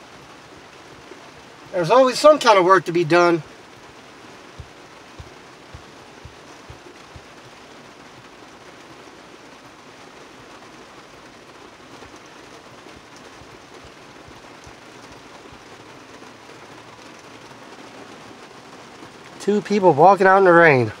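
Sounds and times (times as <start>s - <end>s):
heavy rain on truck: 0.0s - 21.0s
low thuds: 4.5s - 7.3s.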